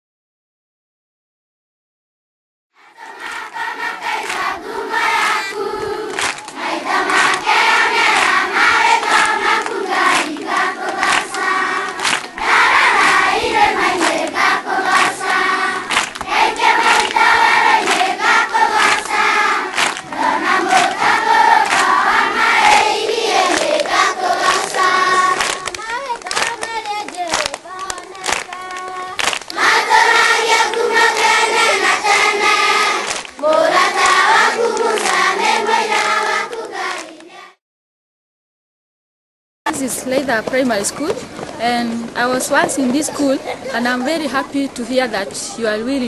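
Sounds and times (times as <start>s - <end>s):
children singing in chorus: 2.8s - 37.6s
hand clapping to the beat: 3.2s - 37.4s.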